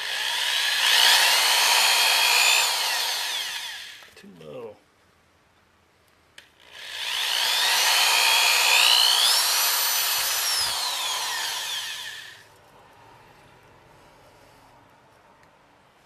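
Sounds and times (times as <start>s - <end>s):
power drill boring through metal: 0.0s - 4.1s, 6.6s - 12.4s.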